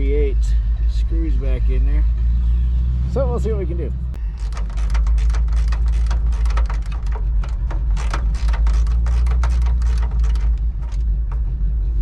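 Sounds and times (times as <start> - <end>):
steady low rumble: 3.9 - 12.0
hand ratchet clicking: 4.2 - 11.4.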